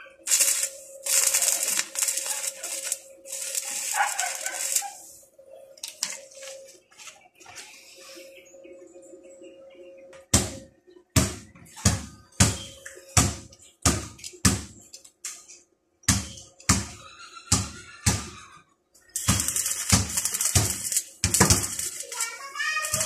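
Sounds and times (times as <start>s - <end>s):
arc welding crackle: 0.0s - 7.8s, 16.1s - 23.0s.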